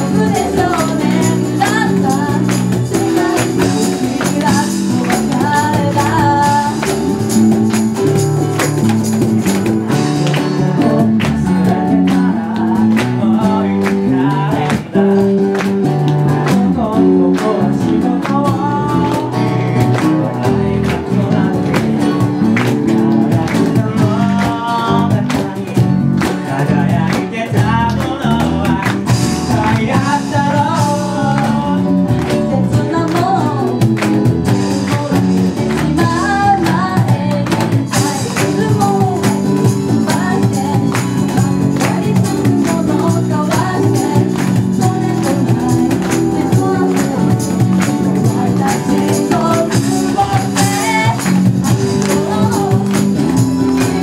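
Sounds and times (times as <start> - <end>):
man singing: 0.0 - 7.2, 10.1 - 15.6, 16.2 - 54.0
woman singing: 0.0 - 7.5, 10.4 - 14.8, 16.5 - 19.8, 26.5 - 54.0
acoustic pop band playing: 0.0 - 54.0
light percussion beat: 0.0 - 54.0.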